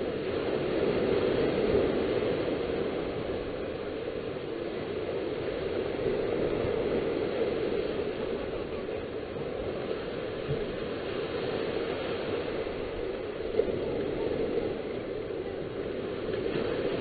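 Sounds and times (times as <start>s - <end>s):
surf breaking on beach: 0.0s - 17.0s
wind: 0.0s - 17.0s.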